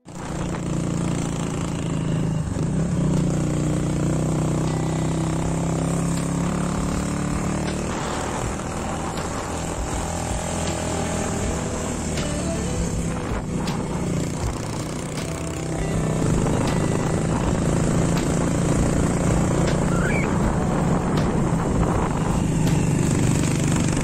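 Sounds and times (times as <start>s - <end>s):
motorcycle engine running: 0.0s - 24.0s
wind rushing over microphone: 6.9s - 11.9s, 15.8s - 24.0s.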